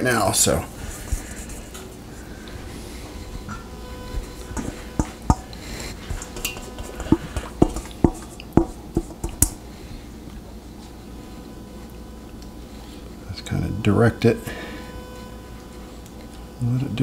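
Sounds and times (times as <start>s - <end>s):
spatula scraping metal bowl: 4.5s - 8.3s.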